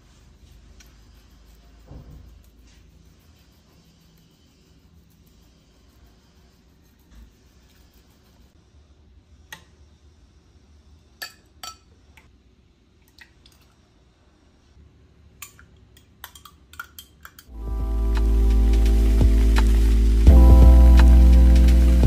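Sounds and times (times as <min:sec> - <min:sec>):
music: 0:17.5 - 0:22.0.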